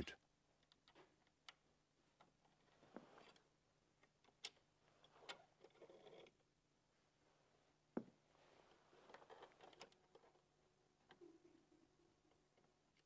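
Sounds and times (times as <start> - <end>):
faint clicks of metal parts: 9.0 - 10.4.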